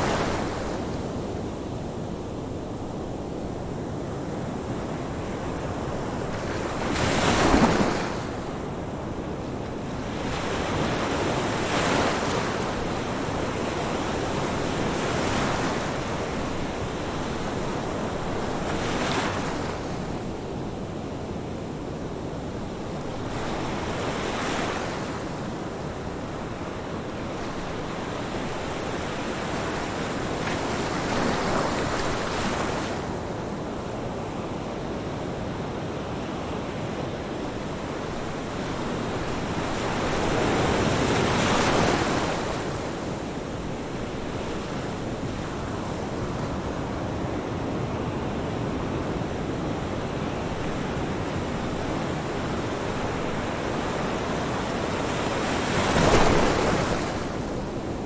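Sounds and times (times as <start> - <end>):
ocean waves breaking: 6.2 - 8.5, 50.2 - 57.9.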